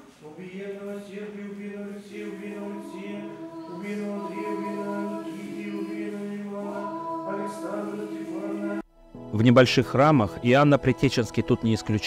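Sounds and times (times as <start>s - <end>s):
choir singing chant a cappella: 0.2s - 8.8s.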